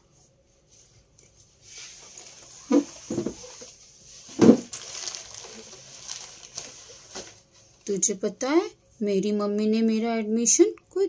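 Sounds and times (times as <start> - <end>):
fabric and straps rustling: 0.6 - 7.9.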